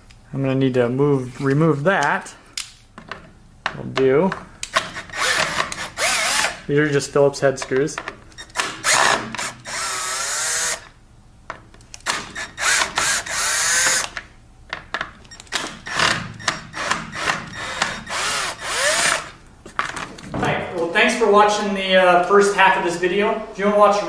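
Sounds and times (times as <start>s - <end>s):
cordless drill motor whirring: 5.0s - 6.6s, 8.7s - 10.9s, 12.4s - 14.2s, 15.8s - 19.3s.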